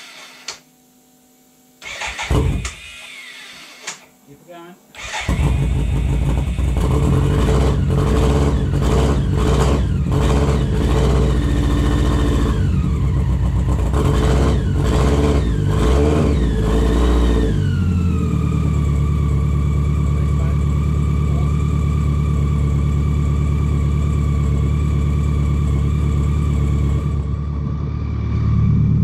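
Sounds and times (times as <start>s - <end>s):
motorcycle engine revving and idling: 5.0s - 27.9s.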